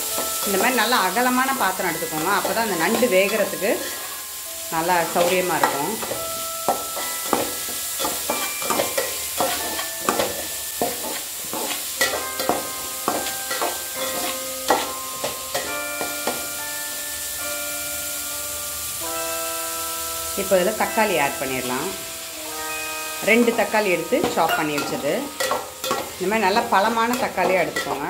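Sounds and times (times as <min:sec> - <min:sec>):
onions sauteing in oil: 0:00.0 - 0:28.0
soft keyboard background music: 0:00.0 - 0:28.0
metal spatula scraping a pot: 0:07.2 - 0:15.7, 0:24.3 - 0:28.0.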